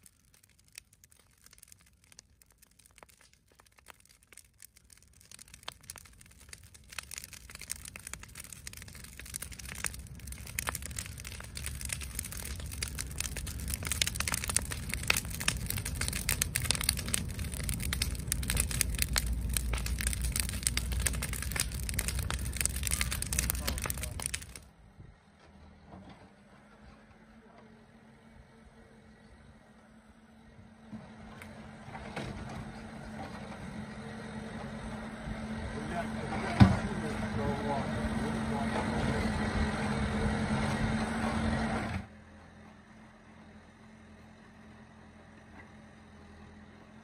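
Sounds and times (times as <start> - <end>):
bonfire crackling and popping: 0.0 - 24.7
low rumble: 4.9 - 25.0.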